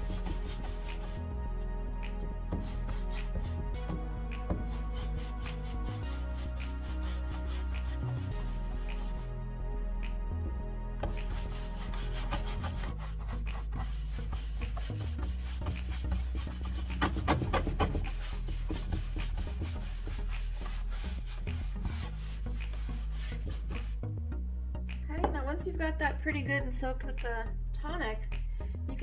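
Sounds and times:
brush scrubbing a board: 0.0s - 1.2s, 2.6s - 3.6s, 4.5s - 9.3s, 11.0s - 24.0s
background music: 0.0s - 29.0s.

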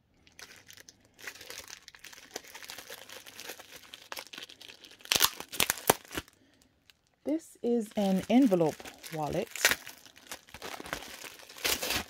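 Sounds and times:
packaging crinkling: 0.2s - 12.0s.

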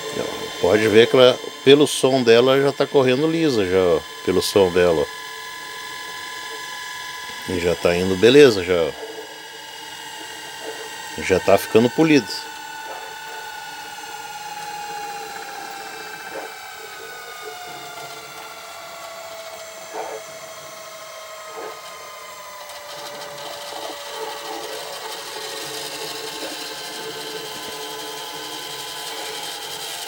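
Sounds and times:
tape transport whirring: 0.0s - 30.0s.

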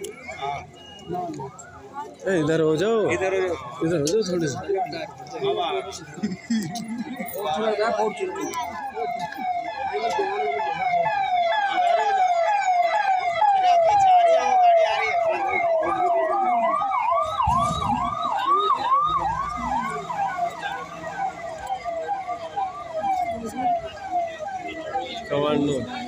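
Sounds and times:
siren cycling in fast sweeps: 7.5s - 26.0s.

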